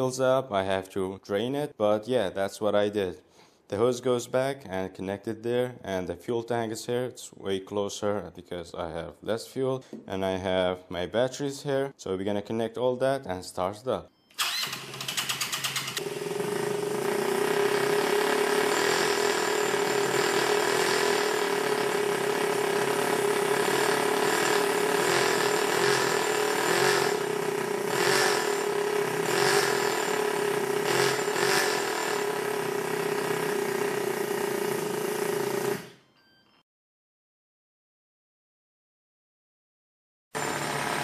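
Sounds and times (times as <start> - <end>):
model engine cranking: 14.4 - 16.0, 17.5 - 22.3, 23.1 - 32.6
model engine running: 14.4 - 35.9.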